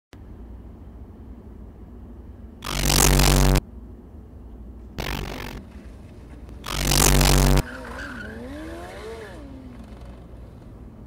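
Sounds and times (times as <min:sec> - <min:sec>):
motorcycle engine revving: 0:02.6 - 0:03.6, 0:05.0 - 0:05.6, 0:06.5 - 0:10.3.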